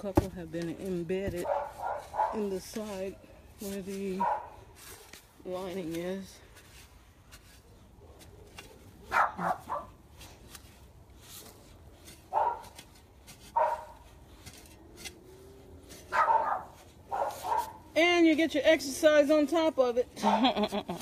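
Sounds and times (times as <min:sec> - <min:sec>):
hoe chopping into soil: 0:00.0 - 0:19.1
dog barking: 0:01.4 - 0:02.4, 0:04.2 - 0:04.5, 0:09.1 - 0:09.9, 0:12.3 - 0:12.7, 0:13.6 - 0:14.0, 0:16.1 - 0:17.8.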